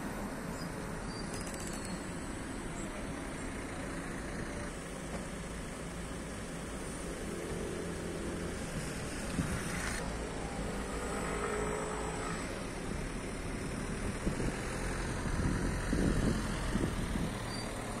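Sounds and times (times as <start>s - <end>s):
street traffic rumble: 0.0s - 18.0s
car passing close: 7.3s - 18.0s.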